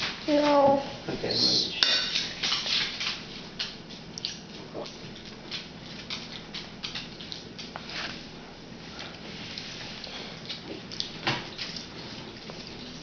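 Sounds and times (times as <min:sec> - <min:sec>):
toddler chewing wet smacks: 0:03.6 - 0:07.9, 0:09.0 - 0:13.0.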